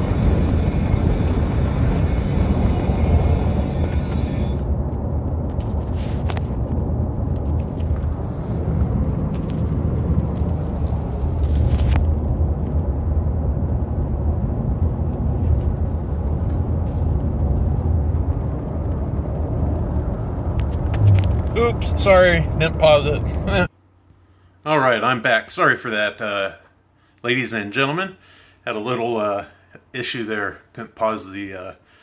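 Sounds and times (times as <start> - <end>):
road rumble inside car: 0.0 - 23.7.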